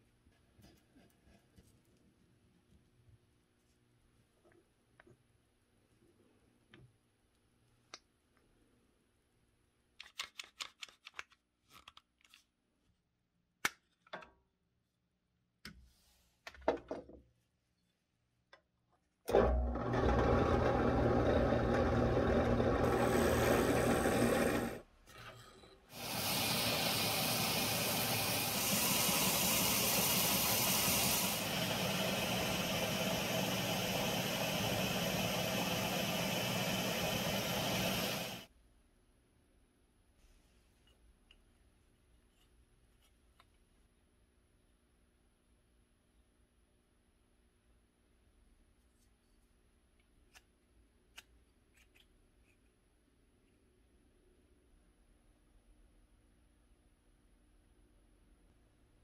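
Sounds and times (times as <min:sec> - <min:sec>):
drill press drilling wood: 0:19.3 - 0:24.8
belt grinder sanding: 0:22.8 - 0:24.8.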